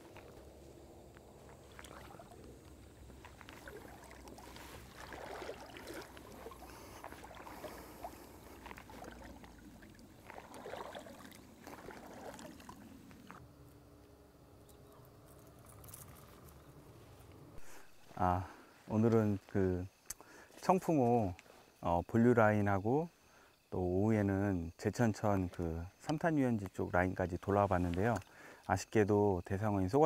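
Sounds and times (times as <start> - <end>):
water sloshing around legs: 0.0 - 13.4
outdoor background: 0.0 - 30.0.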